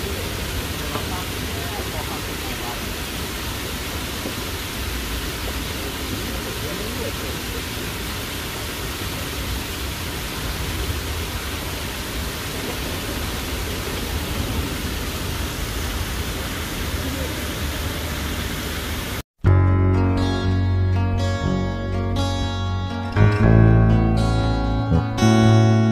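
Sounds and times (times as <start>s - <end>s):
fountain water rushing: 0.0s - 19.2s.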